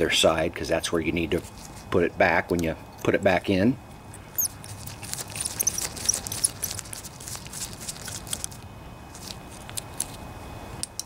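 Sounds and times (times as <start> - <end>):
faint high squeaks: 5.2 - 6.8.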